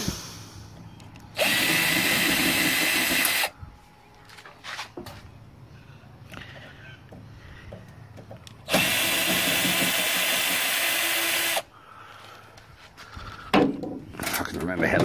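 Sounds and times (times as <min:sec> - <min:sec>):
cordless drill running: 0:01.4 - 0:03.5, 0:08.7 - 0:11.7.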